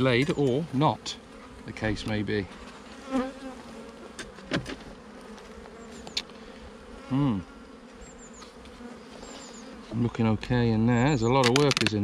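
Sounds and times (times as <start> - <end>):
honeybees buzzing: 0.0 - 12.0
buzz sweeping down in pitch: 2.6 - 10.0.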